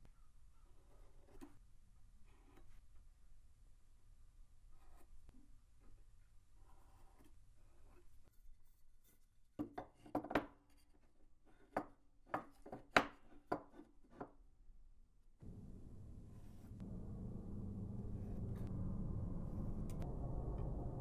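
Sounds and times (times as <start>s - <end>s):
steady low noise: 15.4s - 21.0s.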